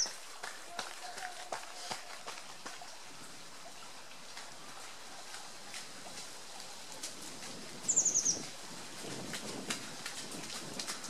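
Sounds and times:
bird trilling: 7.9s - 8.4s.

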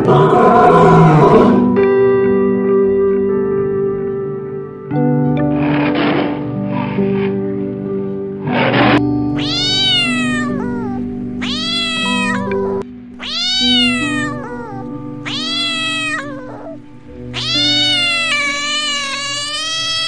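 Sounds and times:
background music with held notes: 0.0s - 20.0s
cat meowing: 8.5s - 20.0s.

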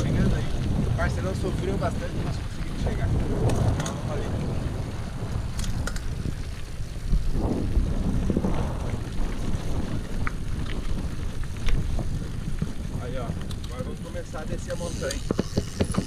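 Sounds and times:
bike tyres rolling on dirt: 0.0s - 16.0s
wind buffeting microphone: 0.0s - 16.0s
scattered clicks: 3.4s - 4.0s, 13.3s - 16.0s.

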